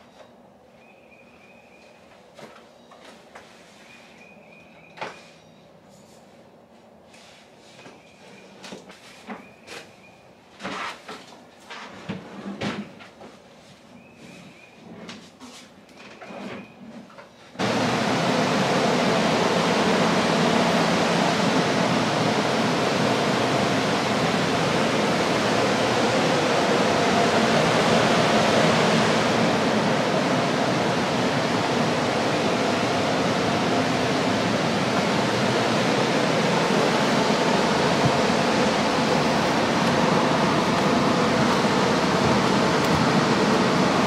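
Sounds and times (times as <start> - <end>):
air movers rushing air: 17.6 - 44.0
faint hum: 17.6 - 44.0.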